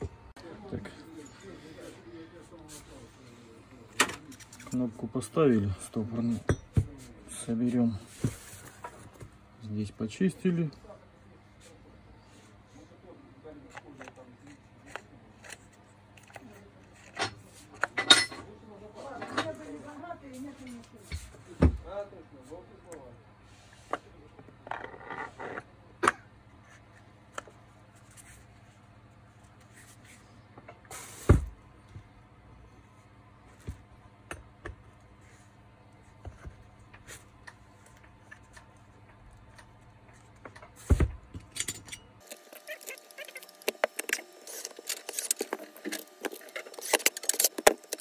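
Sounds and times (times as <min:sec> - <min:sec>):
angle grinder parts clicking and knocking: 0:41.4 - 0:48.0.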